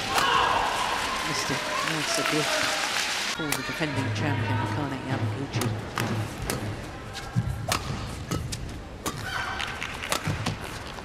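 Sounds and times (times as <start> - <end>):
rackets hitting shuttlecock: 5.6 - 6.8, 7.4 - 10.8.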